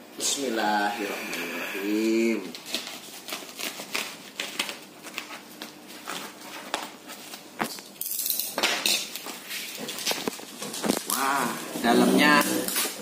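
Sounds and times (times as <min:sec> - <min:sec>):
plastic wrapping crinkling: 0:02.4 - 0:08.0, 0:09.1 - 0:11.8.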